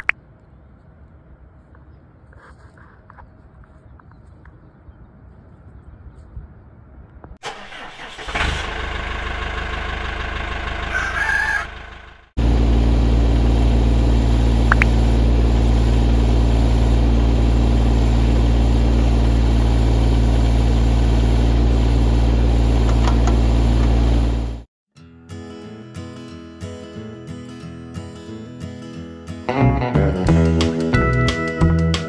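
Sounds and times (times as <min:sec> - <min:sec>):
tractor diesel engine running: 0:07.4 - 0:24.7
chicken calling: 0:10.8 - 0:11.8.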